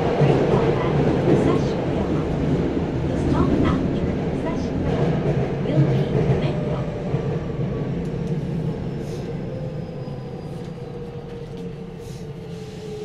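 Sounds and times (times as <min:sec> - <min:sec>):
train interior rumble: 0:00.0 - 0:13.0.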